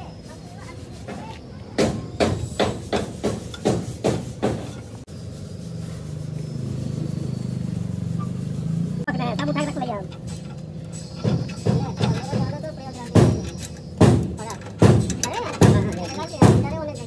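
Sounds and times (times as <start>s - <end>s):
low mechanical drone: 4.8s - 17.0s.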